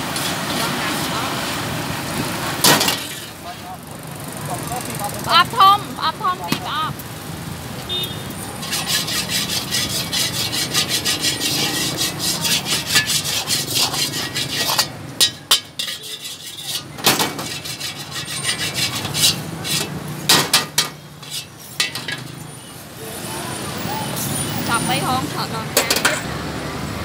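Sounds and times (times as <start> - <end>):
metal ladle scraping a wok: 2.6 - 3.8, 8.4 - 22.6.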